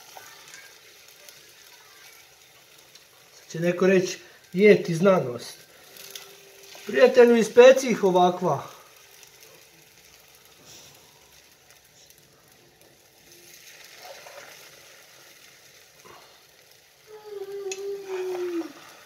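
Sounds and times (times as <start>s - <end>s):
eggs sizzling in a frying pan: 0.0s - 19.0s
fork scraping a pan: 13.9s - 14.7s.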